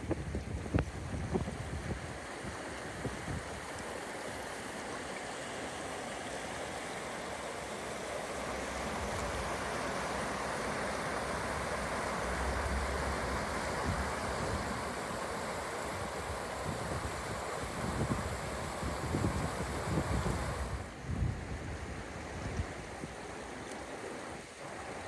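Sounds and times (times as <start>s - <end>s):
wind rumble on microphone: 0.0s - 3.7s, 11.0s - 23.4s
river rushing over stones: 0.0s - 25.0s.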